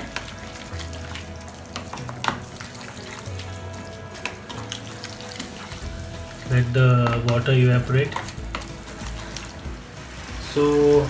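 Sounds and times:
carrots sizzling in frying pan: 0.0 - 11.0
spatula scraping pan: 4.2 - 11.0.

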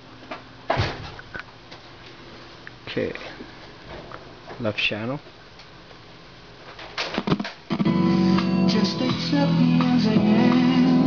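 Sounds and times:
music through a speaker: 7.4 - 11.0.

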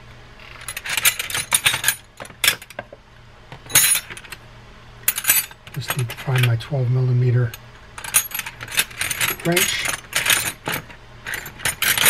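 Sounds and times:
metal hand tools clattering: 8.0 - 12.0.

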